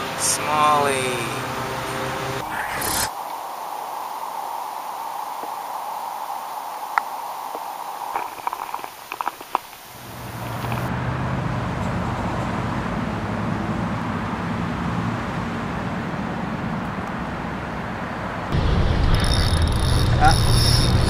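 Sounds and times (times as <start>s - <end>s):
steady low rumble: 18.5s - 21.0s.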